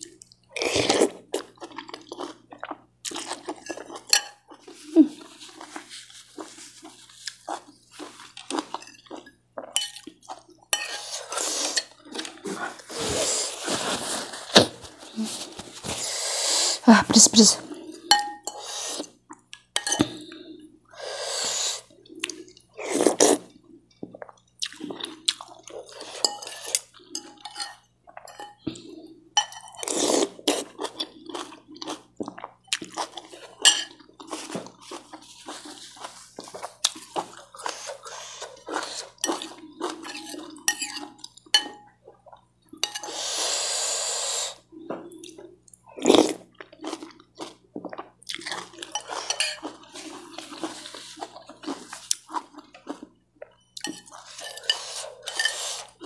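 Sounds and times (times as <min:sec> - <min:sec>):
cutlery clinking on ceramic bowl: 0:03.6 - 0:04.4, 0:09.7 - 0:10.1, 0:10.7 - 0:11.1, 0:18.1 - 0:18.6, 0:19.8 - 0:20.1, 0:26.2 - 0:28.6, 0:33.6 - 0:34.0, 0:40.0 - 0:41.9, 0:42.8 - 0:43.1, 0:48.8 - 0:49.7, 0:53.8 - 0:55.7
slurping noodles: 0:11.0 - 0:16.9, 0:43.0 - 0:44.6.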